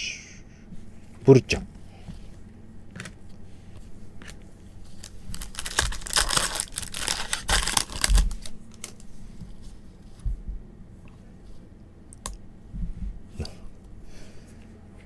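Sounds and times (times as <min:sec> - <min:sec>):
foil wrapper crinkling and tearing: 0:04.9 - 0:09.1.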